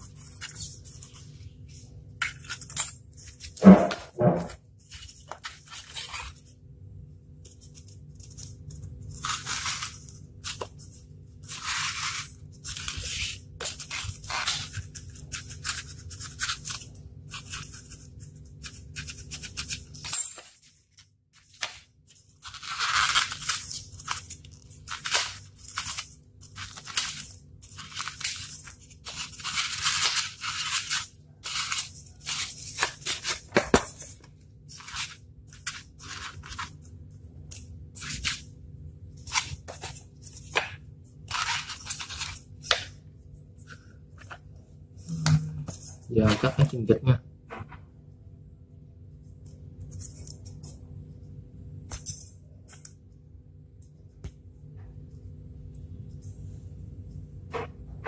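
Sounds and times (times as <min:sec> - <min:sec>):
steady low hum: 0:00.0 - 0:58.0
knife cutting styrofoam: 0:09.2 - 0:10.8, 0:11.4 - 0:20.1, 0:21.4 - 0:36.8, 0:38.0 - 0:38.5, 0:39.2 - 0:43.0.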